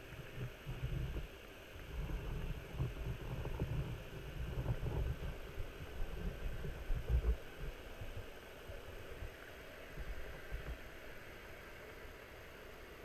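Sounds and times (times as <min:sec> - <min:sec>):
muffled underwater thuds and rumble: 0:00.2 - 0:08.2.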